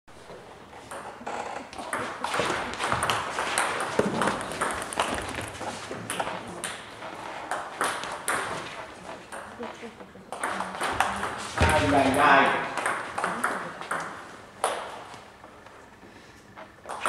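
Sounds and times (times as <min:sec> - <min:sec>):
table tennis ball pocks: 0:01.7 - 0:09.5.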